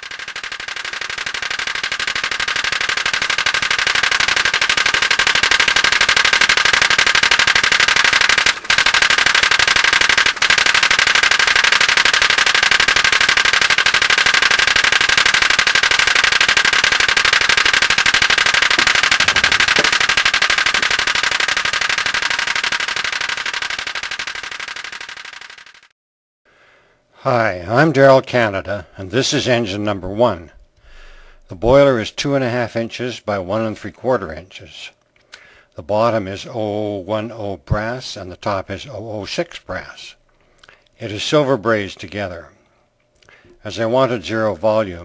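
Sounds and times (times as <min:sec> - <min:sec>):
steam engine rapid popping: 0:00.0 - 0:25.9.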